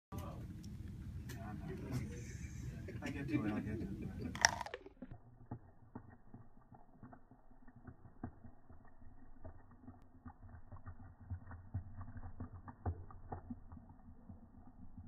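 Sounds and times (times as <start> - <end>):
slowed fizz pops and crackles: 4.4 - 15.0.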